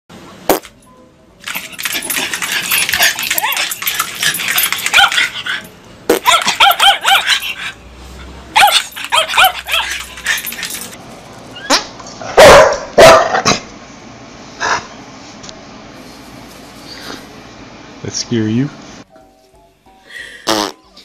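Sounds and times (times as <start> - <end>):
dog yipping: 1.6 - 7.8, 8.5 - 13.4
loud dog barks: 6.1 - 7.6, 8.5 - 10.0, 12.2 - 13.6.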